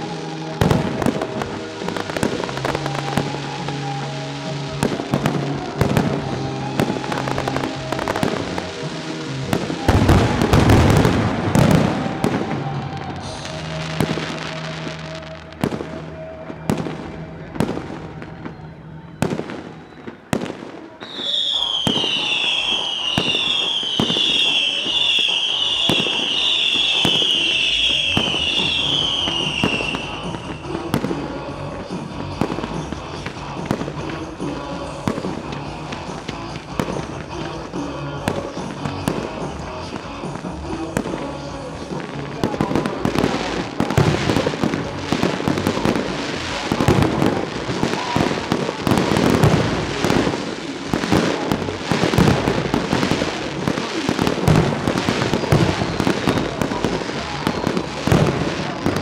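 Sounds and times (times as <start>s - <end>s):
falling firework whistles: 0.0s - 8.8s, 9.5s - 17.0s, 18.4s - 31.3s
fireworks bursting and crackling: 0.0s - 59.0s
music: 0.0s - 59.0s.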